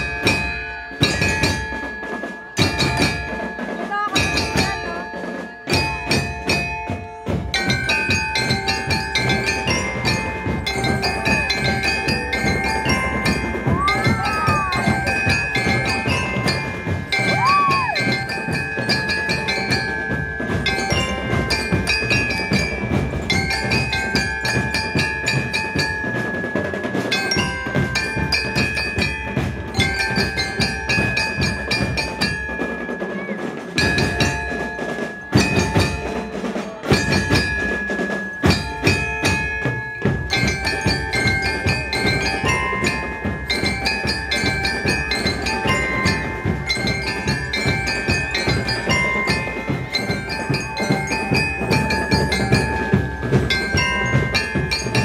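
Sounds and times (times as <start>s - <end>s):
bell lyre melody: 0.0s - 55.0s
rapid marching drums: 0.0s - 55.0s.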